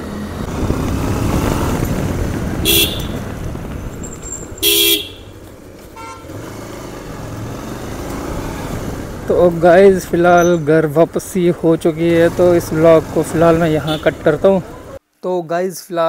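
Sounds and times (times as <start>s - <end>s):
motorcycle riding noise: 0.0s - 15.0s
vehicle horn: 2.6s - 3.3s, 4.6s - 6.5s, 13.8s - 14.3s.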